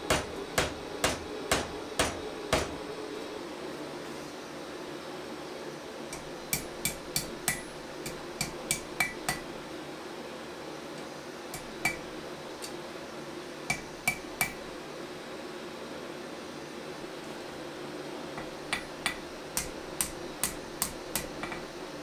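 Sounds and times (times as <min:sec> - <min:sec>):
hammer striking metal on anvil: 0:00.0 - 0:02.8, 0:06.2 - 0:09.5, 0:11.6 - 0:12.1, 0:13.7 - 0:14.6, 0:18.4 - 0:21.7
steady low hum: 0:00.0 - 0:22.0.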